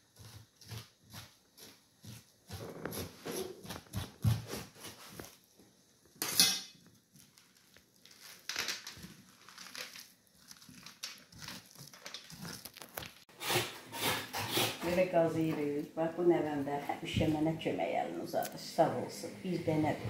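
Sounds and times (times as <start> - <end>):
hand scraping pumpkin pulp: 0.1 - 5.4, 7.4 - 15.3
seeds clattering onto metal tray: 10.8 - 13.2.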